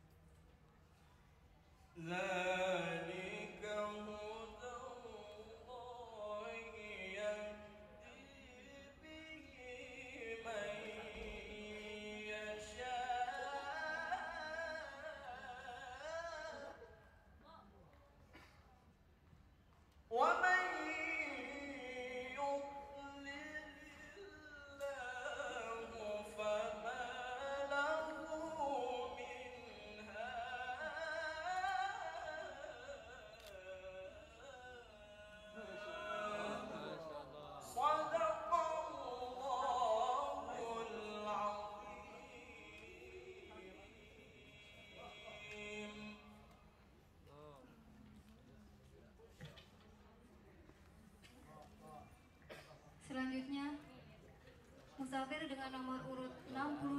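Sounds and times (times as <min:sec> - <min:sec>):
man reciting melodically into microphone: 0:01.9 - 0:17.3, 0:20.0 - 0:49.5.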